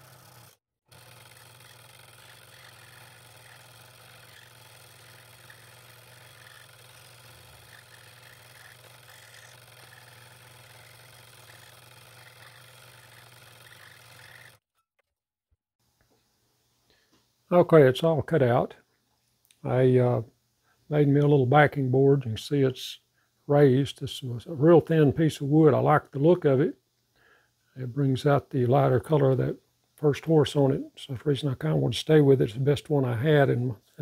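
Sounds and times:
scroll saw cutting wood: 0:00.0 - 0:14.6.

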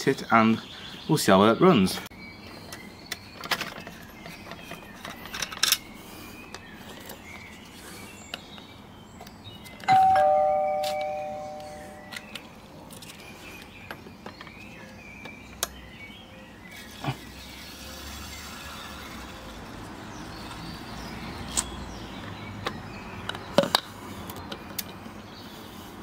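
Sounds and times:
clicks and knocks of handling: 0:02.7 - 0:05.8, 0:21.5 - 0:25.0.

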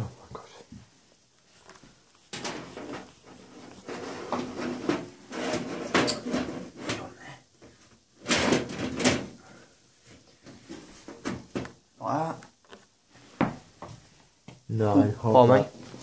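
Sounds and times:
panel scraping and clunking: 0:02.3 - 0:07.1, 0:08.2 - 0:09.4.

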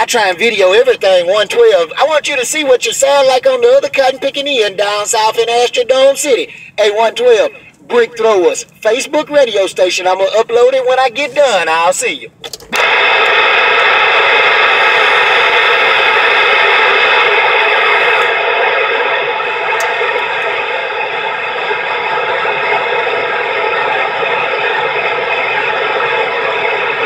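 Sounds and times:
radio static hiss: 0:00.0 - 0:09.4, 0:10.8 - 0:27.0.

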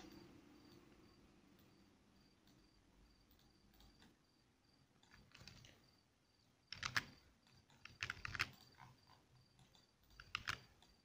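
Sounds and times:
keyboard and mouse clicks: 0:02.4 - 0:04.2, 0:05.0 - 0:05.8, 0:06.7 - 0:11.0.

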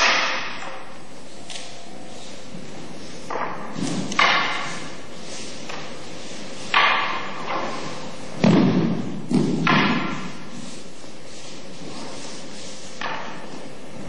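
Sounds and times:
bodies thudding on floor: 0:08.3 - 0:10.4.

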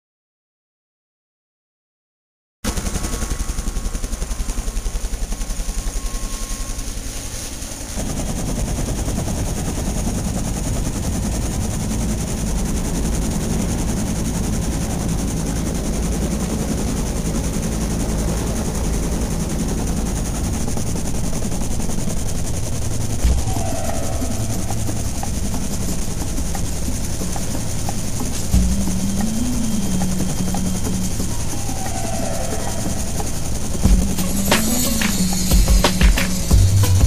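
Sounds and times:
helicopter rotor and turbine rumble: 0:02.7 - 0:37.0
helicopter rotor blade slap: 0:02.7 - 0:37.0.

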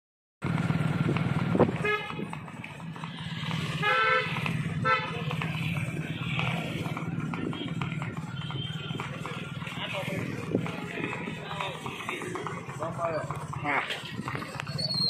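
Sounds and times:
motorcycle engines droning: 0:00.4 - 0:15.0
vehicle horns tooting: 0:01.7 - 0:02.3, 0:03.2 - 0:11.7.

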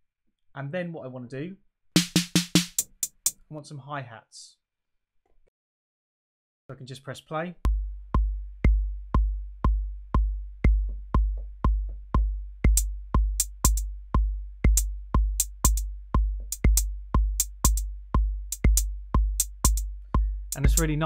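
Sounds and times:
hi-hat hits: 0:02.0 - 0:03.4, 0:07.7 - 0:21.0
kick drum thumping: 0:07.7 - 0:21.0.

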